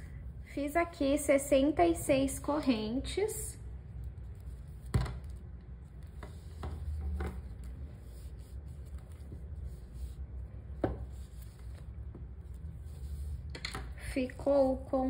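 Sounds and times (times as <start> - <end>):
hands rubbing and rustling: 4.0 - 13.5.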